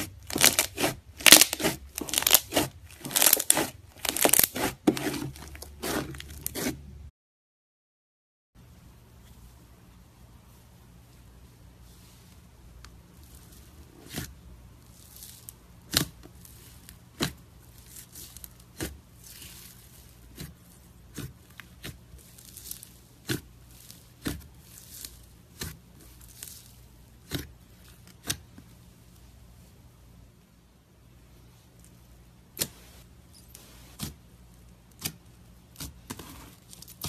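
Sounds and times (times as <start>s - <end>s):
slime squishing: 0.0s - 6.9s, 13.2s - 29.7s, 33.6s - 37.0s.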